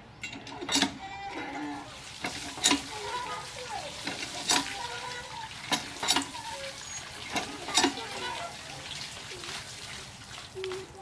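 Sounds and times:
pump handle clanking: 0:00.2 - 0:09.6
water gushing from a pump spout: 0:00.6 - 0:11.0.

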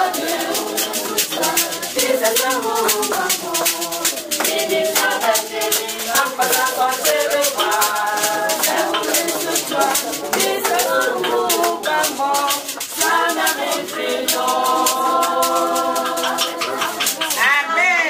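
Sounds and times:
shaker beat: 0:00.0 - 0:18.0
voices singing together: 0:00.0 - 0:18.0.

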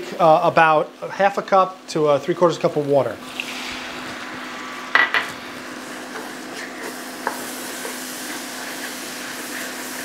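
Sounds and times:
hot pan sizzling: 0:02.0 - 0:10.0
wooden spoon stirring in pan: 0:05.7 - 0:10.0.

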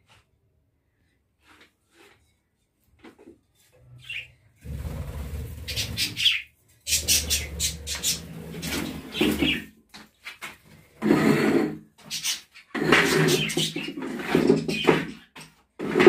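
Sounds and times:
budgerigars chirping: 0:04.0 - 0:04.3, 0:05.5 - 0:09.6.

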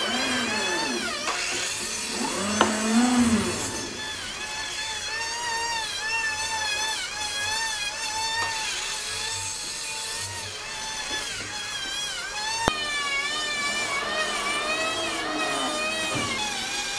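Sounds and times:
miter saw cutting wood: 0:00.0 - 0:16.9.

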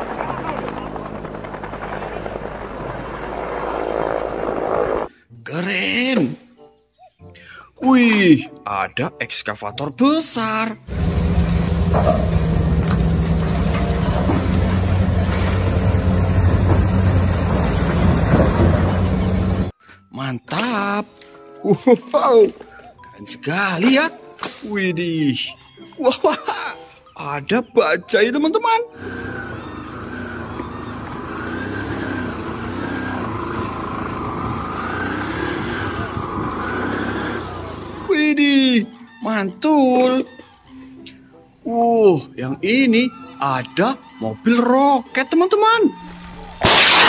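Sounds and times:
diesel engines droning: 0:10.9 - 0:19.7, 0:28.9 - 0:38.2.

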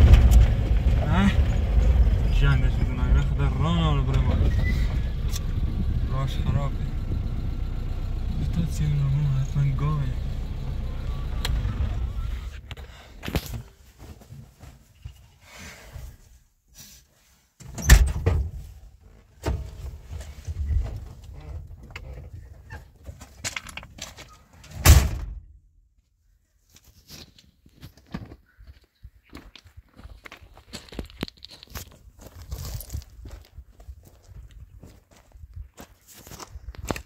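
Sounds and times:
vehicle engine rumble: 0:00.0 - 0:13.8.

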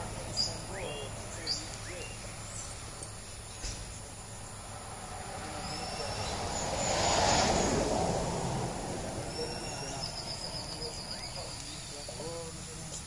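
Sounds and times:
vehicle passing by: 0:00.0 - 0:12.9.

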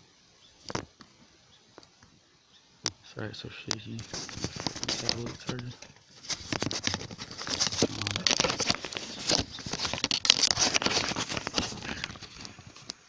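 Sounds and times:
rustling on a microphone: 0:02.8 - 0:13.0.

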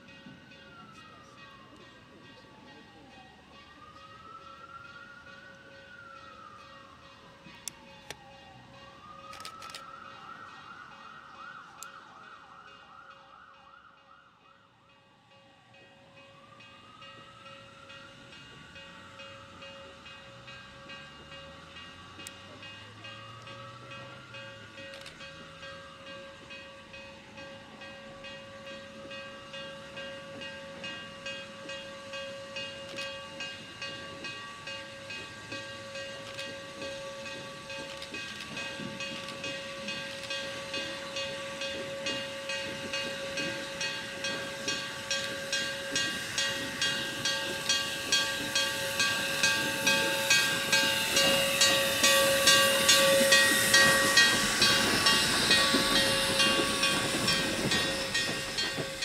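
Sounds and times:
steam locomotive exhaust chuffs: 0:16.9 - 0:59.0
steam hiss: 0:40.5 - 0:59.0.

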